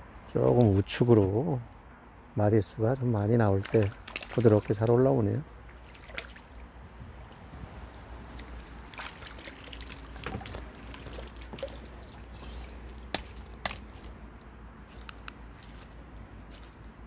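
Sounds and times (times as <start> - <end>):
wind rumbling on microphone: 6.6 - 13.1.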